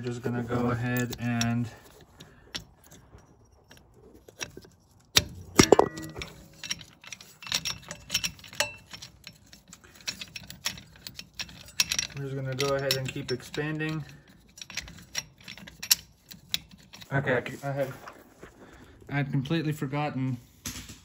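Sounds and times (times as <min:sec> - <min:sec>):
metal tool clinks and clicks: 0:00.4 - 0:17.2
metallic clank with ringing: 0:05.2 - 0:06.9, 0:07.6 - 0:08.9.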